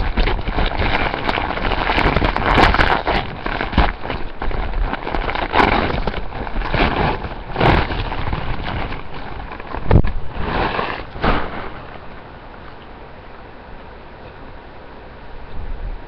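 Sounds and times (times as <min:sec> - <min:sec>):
clothing fabric rustling: 0:00.0 - 0:12.1.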